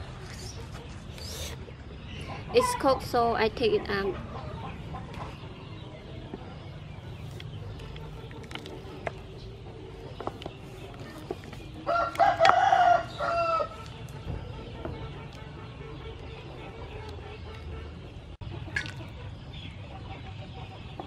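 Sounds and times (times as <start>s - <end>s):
rooster crowing: 11.9s - 13.9s.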